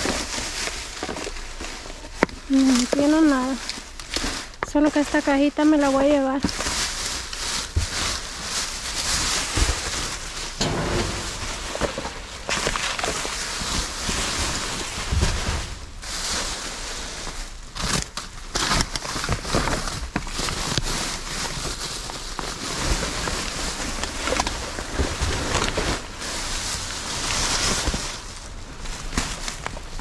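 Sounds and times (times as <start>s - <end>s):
rustling and crinkling of bags: 0.0s - 30.0s
clicks and knocks of items: 10.6s - 13.2s.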